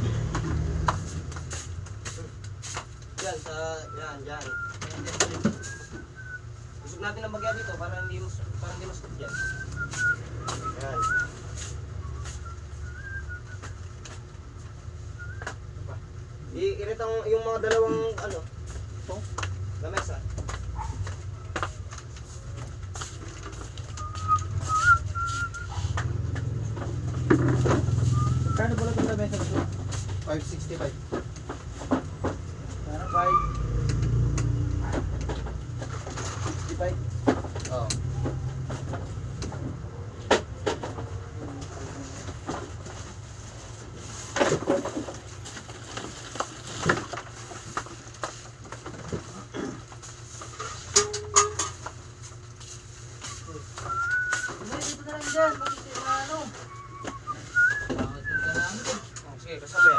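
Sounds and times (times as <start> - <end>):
short whistled notes: 3.8 - 6.5, 9.3 - 11.3, 12.0 - 13.7, 23.9 - 25.9, 28.0 - 28.9, 53.3 - 54.6, 56.6 - 59.0
plastic goods clattering and rustling: 34.9 - 59.0.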